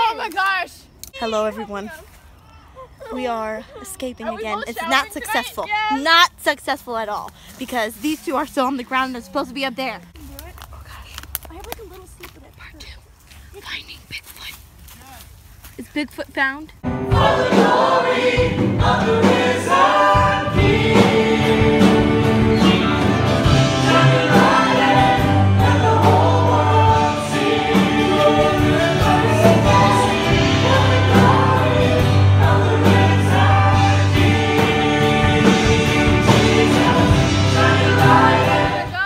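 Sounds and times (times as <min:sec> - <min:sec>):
keyboard: 0:16.8 - 0:39.0
sustained bass notes: 0:16.8 - 0:39.0
people singing together: 0:17.0 - 0:39.0.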